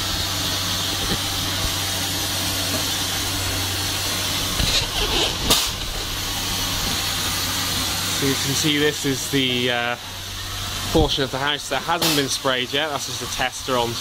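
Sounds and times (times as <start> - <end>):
machine humming: 0.0 - 14.0
steady hiss: 0.0 - 14.0.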